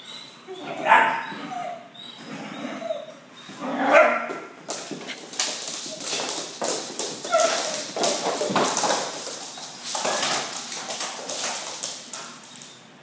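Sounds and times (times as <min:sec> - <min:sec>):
paws clattering on hardwood floor: 0:02.8 - 0:12.8
dog paws scrabbling on couch: 0:04.6 - 0:12.7.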